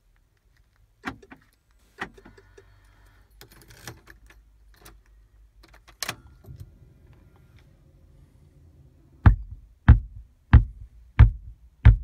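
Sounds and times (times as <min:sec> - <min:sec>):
speaker thumps and pops: 0:09.2 - 0:12.0.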